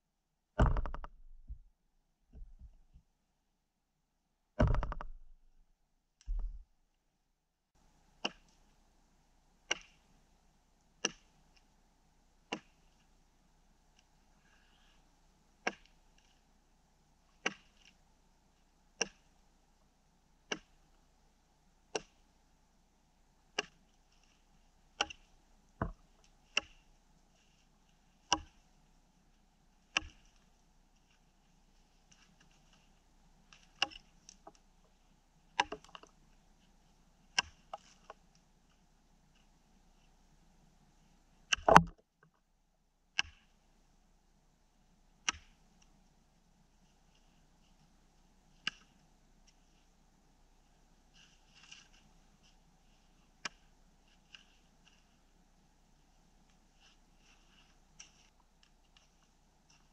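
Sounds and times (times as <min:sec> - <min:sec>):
axe chopping a frozen log: 0:00.6 - 0:01.0, 0:12.5 - 0:12.7, 0:20.5 - 0:20.8.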